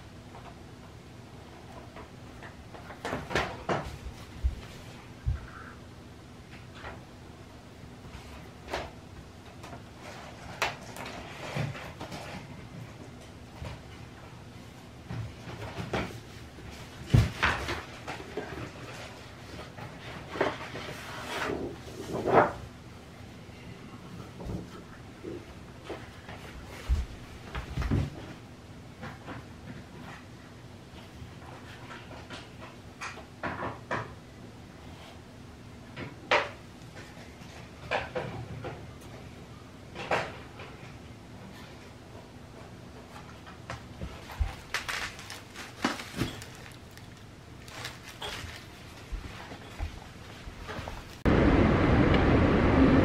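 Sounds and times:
paper wrapping rustling: 0:44.0 - 0:49.9.

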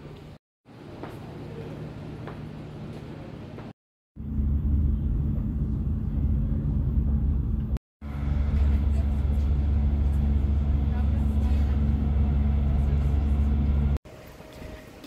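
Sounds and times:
train rumble from inside: 0:04.2 - 0:14.0.

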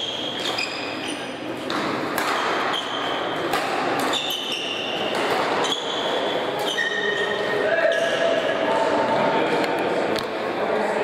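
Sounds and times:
shoes squeaking on floor: 0:00.0 - 0:01.5, 0:02.6 - 0:03.4, 0:04.0 - 0:08.2
racket hitting shuttlecock: 0:01.6 - 0:05.9.

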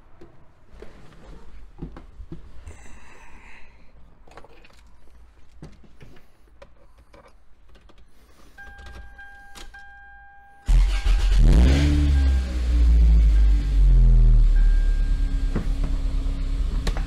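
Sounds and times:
clicks and rustling in car cabin: 0:04.3 - 0:10.0
dashboard warning tone: 0:08.5 - 0:16.1.

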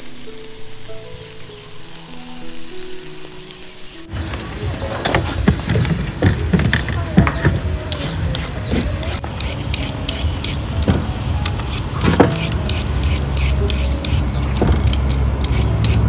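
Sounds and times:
quick food preparation strokes: 0:11.5 - 0:16.0.

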